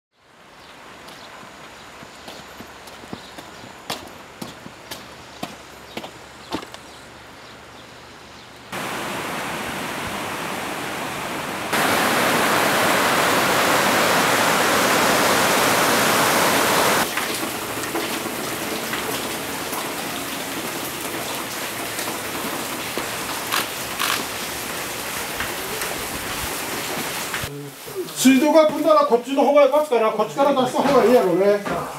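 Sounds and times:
flood river rushing: 0:08.7 - 0:31.9
soft steady hiss: 0:27.2 - 0:31.9.

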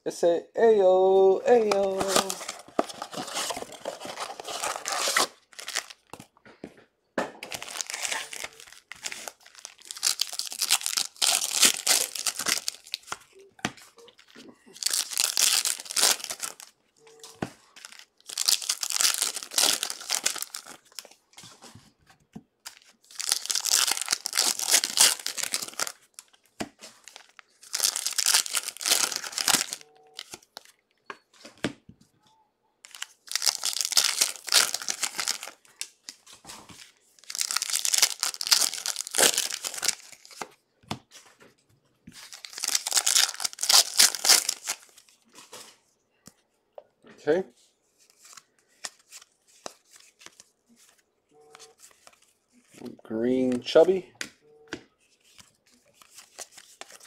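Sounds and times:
foil wrappers tearing and crinkling: 0:01.8 - 0:06.1, 0:07.5 - 0:13.2, 0:14.7 - 0:16.7, 0:17.7 - 0:21.1, 0:22.7 - 0:30.6, 0:32.9 - 0:35.6, 0:37.2 - 0:40.4, 0:42.2 - 0:45.0.

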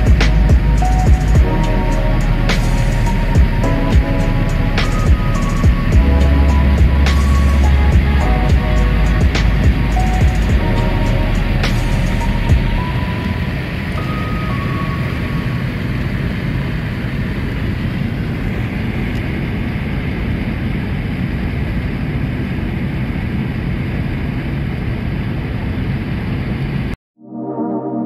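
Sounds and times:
road and engine noise in car cabin: 0:06.2 - 0:27.0.

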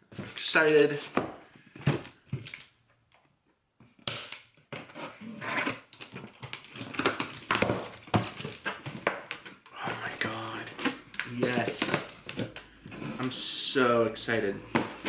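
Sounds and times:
cardboard flaps crackling: 0:09.8 - 0:12.6.

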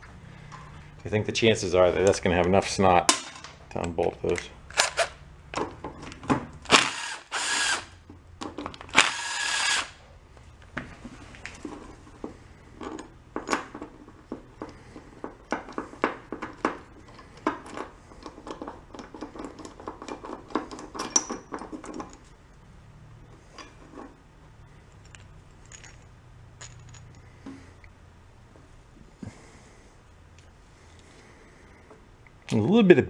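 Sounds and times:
metal engine parts clinking: 0:12.7 - 0:22.3, 0:23.4 - 0:27.9.

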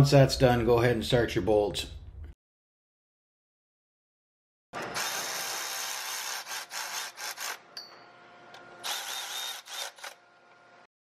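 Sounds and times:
power tool tightening bolts: 0:04.8 - 0:07.7, 0:08.8 - 0:10.2.

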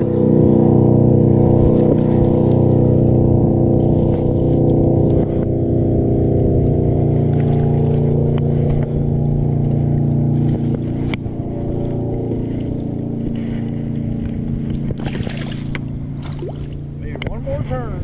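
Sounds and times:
motorboat engine running: 0:00.0 - 0:18.0.

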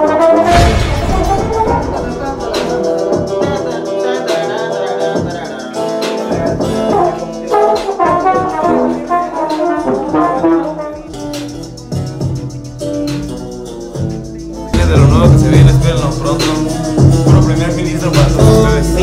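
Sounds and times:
brass band music: 0:00.0 - 0:04.0, 0:06.3 - 0:13.0.

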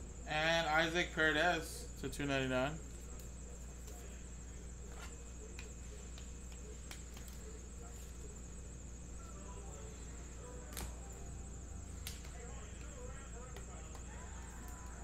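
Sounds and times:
low background hum: 0:00.0 - 0:15.0
cards and plastic sleeves rustling: 0:04.8 - 0:08.4.

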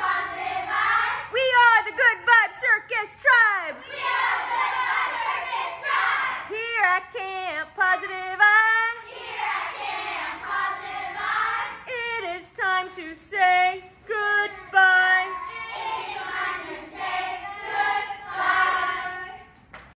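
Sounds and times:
children singing together: 0:00.0 - 0:01.3, 0:03.8 - 0:06.5, 0:08.0 - 0:12.0, 0:12.8 - 0:19.5.

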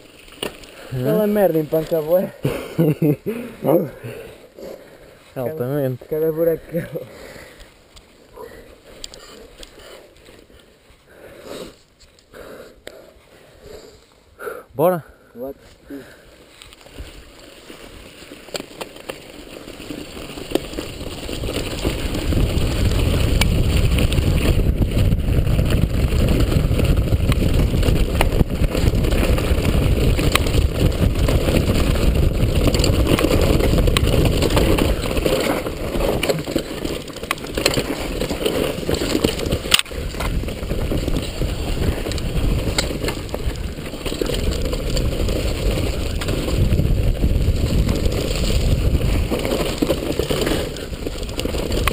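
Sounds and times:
tyres rumbling over dirt: 0:00.0 - 0:07.6, 0:16.0 - 0:51.9
bike knocks and rattles: 0:18.4 - 0:51.9
wind rushing over microphone: 0:21.0 - 0:36.8, 0:37.5 - 0:51.9.

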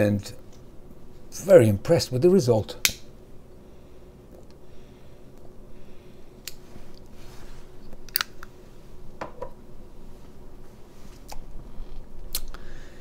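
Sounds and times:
soft breathy rush: 0:12.6 - 0:13.0.

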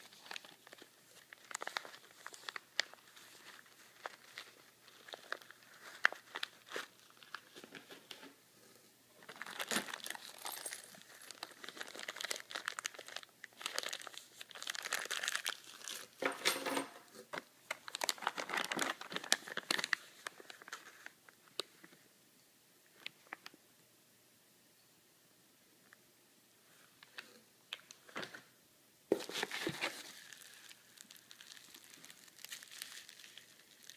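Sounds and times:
plastic bags crinkling: 0:00.0 - 0:07.9, 0:09.2 - 0:16.3, 0:17.1 - 0:21.2, 0:29.1 - 0:33.9.

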